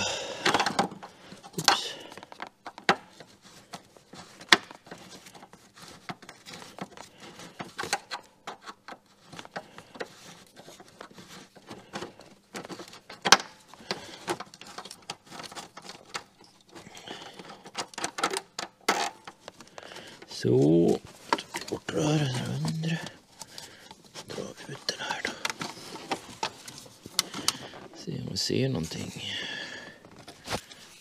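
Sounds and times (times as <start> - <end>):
hand tools clicking and tapping: 0.0 - 20.6, 25.0 - 28.0.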